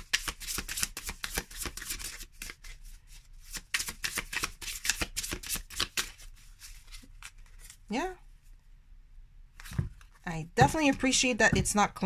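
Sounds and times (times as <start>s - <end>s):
cards being shuffled: 0.0s - 7.9s.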